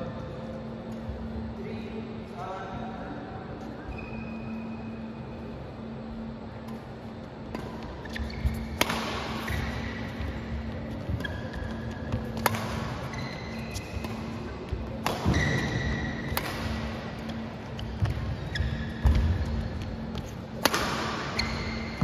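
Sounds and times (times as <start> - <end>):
low hum: 0.0 - 22.0
racket hitting shuttlecock: 7.5 - 10.3, 11.1 - 18.2, 18.9 - 22.0
shoes squeaking on court: 7.6 - 22.0.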